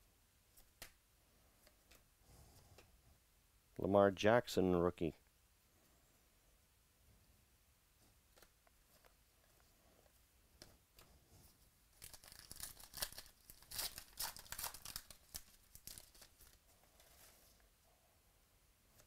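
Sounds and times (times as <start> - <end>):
wrapper tearing and crinkling: 12.0 - 17.3.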